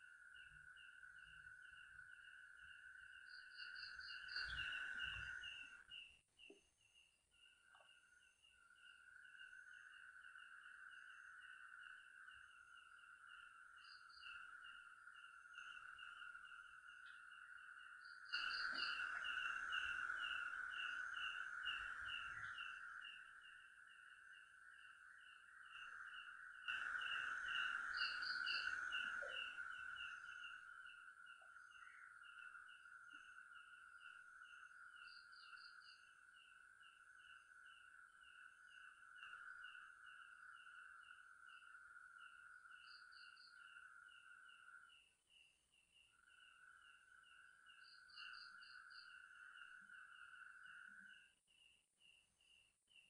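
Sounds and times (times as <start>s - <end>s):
insects trilling: 0.0s - 53.0s
pulsing insect chirps: 0.0s - 53.0s.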